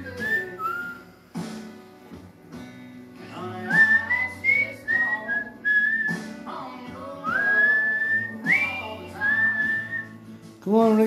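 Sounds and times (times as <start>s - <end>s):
person whistling a tune: 0.0s - 1.2s, 3.6s - 6.4s, 7.2s - 10.2s
music playing in room: 0.0s - 11.0s.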